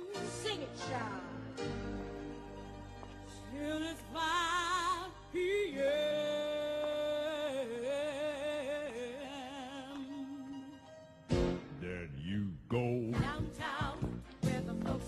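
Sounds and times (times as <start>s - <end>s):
person singing with vibrato: 3.5s - 10.9s, 11.7s - 15.0s.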